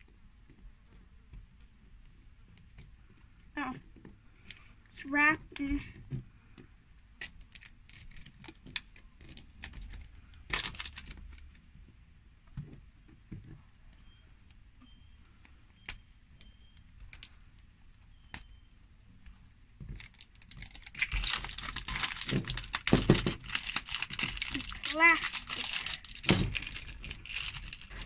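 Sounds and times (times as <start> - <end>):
plastic wrap crinkling: 7.4 - 11.6, 19.9 - 28.0.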